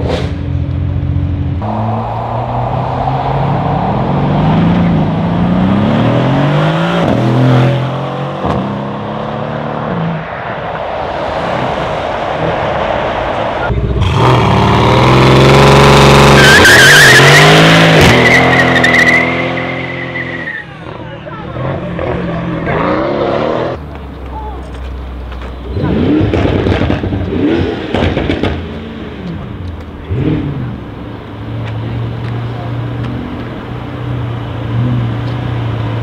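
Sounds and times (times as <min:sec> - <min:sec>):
car engine accelerating: 0:00.0 - 0:24.0
car engine revving hard: 0:01.6 - 0:10.0, 0:13.8 - 0:19.8
tyres squealing: 0:16.3 - 0:20.9.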